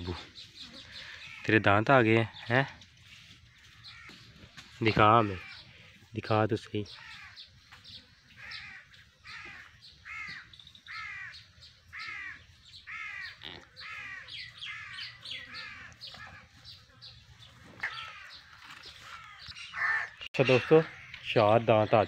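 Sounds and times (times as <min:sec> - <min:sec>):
crows cawing: 0:00.8 - 0:01.6, 0:03.5 - 0:05.7, 0:06.9 - 0:07.5, 0:08.3 - 0:16.6, 0:17.8 - 0:21.7.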